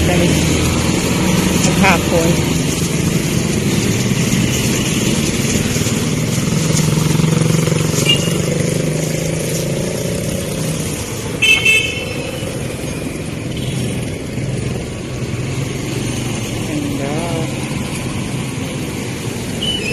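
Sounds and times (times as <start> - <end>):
motorcycle engine running: 0.0 - 19.6
vehicle horn toots: 8.0 - 8.4, 11.4 - 12.3.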